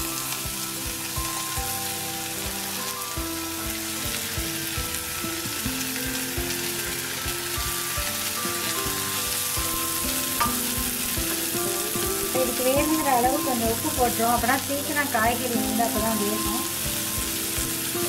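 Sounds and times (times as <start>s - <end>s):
hot oil sizzling in a pan: 0.0s - 18.0s
soft background music: 0.0s - 18.0s
vegetables knocking into pan: 7.5s - 13.5s.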